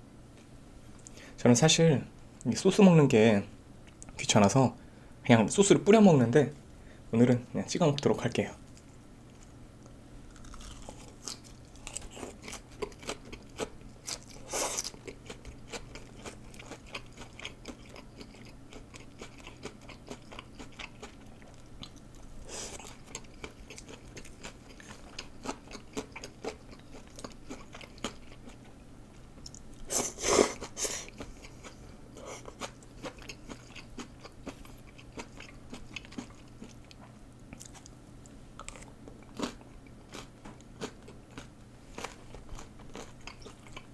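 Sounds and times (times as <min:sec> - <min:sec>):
close chewing and biting: 0:10.3 - 0:28.7, 0:30.5 - 0:38.0, 0:38.6 - 0:43.9.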